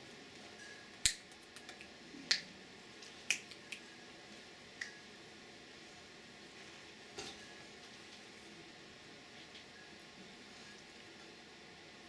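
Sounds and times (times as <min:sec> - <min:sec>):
fingers snapping: 0:01.0 - 0:02.5, 0:03.3 - 0:03.8.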